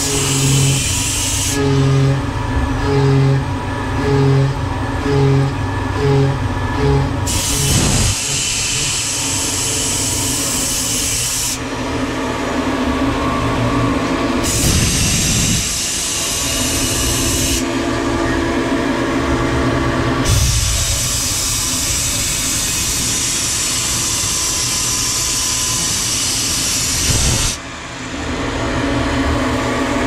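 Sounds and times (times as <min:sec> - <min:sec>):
milling machine hum: 0:00.0 - 0:30.0
high cutting hiss: 0:07.3 - 0:11.6.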